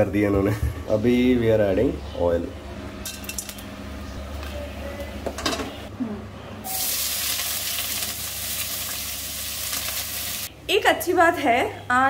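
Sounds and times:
oil sizzling: 6.7s - 10.5s.

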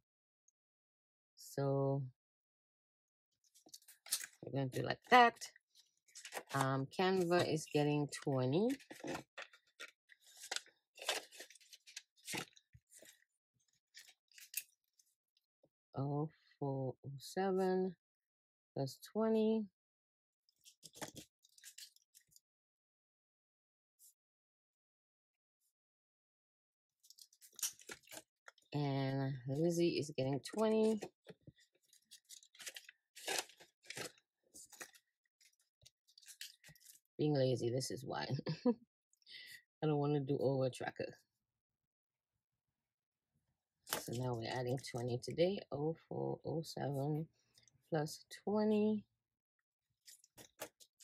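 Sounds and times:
paper rustling: 3.5s - 7.6s, 8.6s - 15.2s, 20.6s - 22.4s, 27.0s - 28.6s, 30.5s - 37.1s, 43.9s - 44.2s, 50.0s - 51.0s.

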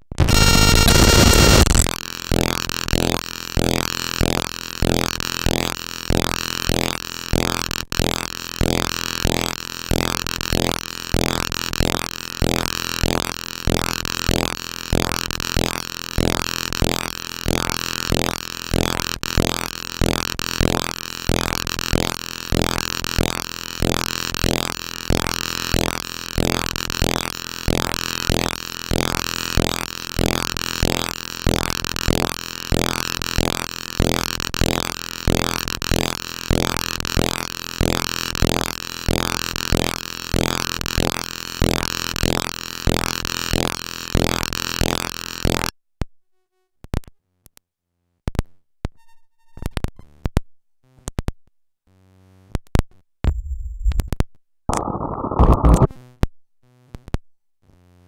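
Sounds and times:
stuttering digital clicks: 0.1s - 2.0s, 53.3s - 56.0s
pulsing synthesized noise: 0.2s - 1.8s, 53.3s - 55.9s.

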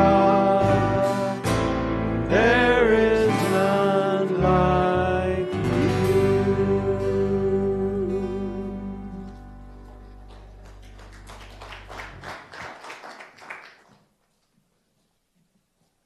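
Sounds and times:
acoustic guitar and keyboard chord: 0.0s - 9.8s.

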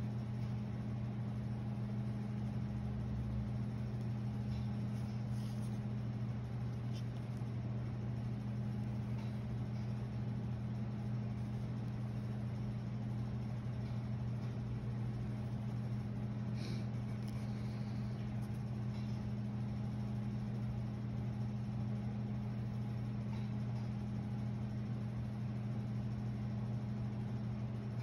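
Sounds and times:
low mechanical hum: 0.0s - 28.0s
pencil scratching on paper: 4.6s - 5.8s, 6.7s - 7.4s.

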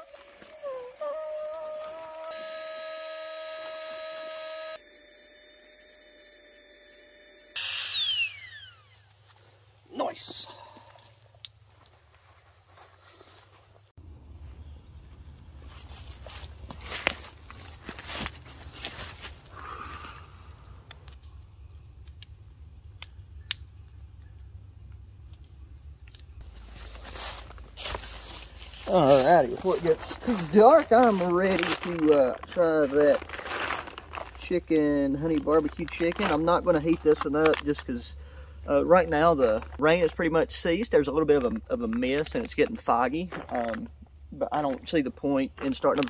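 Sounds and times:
air pump whining: 0.0s - 9.5s, 26.5s - 38.8s.

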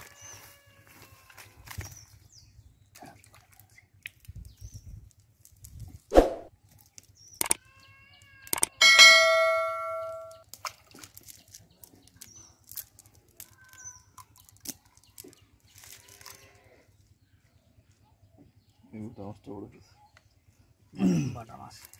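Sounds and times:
sharp clicks: 7.4s - 7.6s, 8.4s - 8.8s
metal clang ringing: 8.8s - 10.4s.

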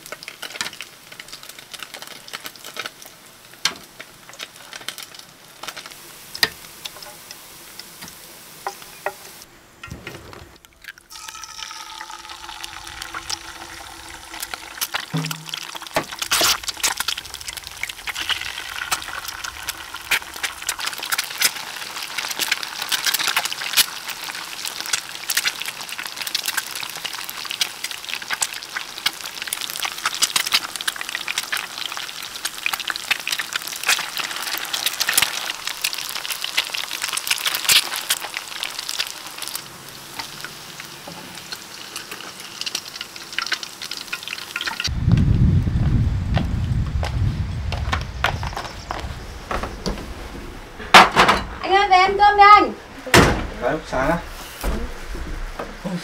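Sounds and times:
eggs sizzling in hot oil: 0.0s - 9.5s, 10.6s - 44.9s
oil crackling and popping: 0.0s - 9.5s, 10.3s - 49.2s
low rumble: 44.9s - 51.7s.

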